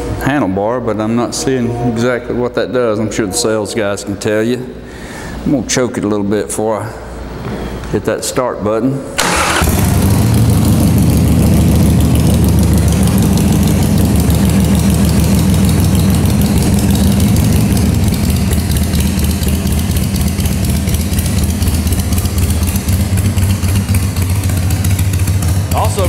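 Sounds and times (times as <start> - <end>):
motorcycle engine idling: 9.3 - 26.0.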